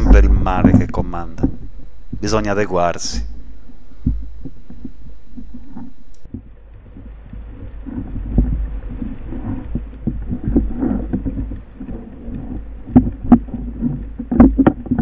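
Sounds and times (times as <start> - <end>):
sharp clicks: 0.0 - 6.3
muffled water sloshing and splashing: 3.3 - 15.0.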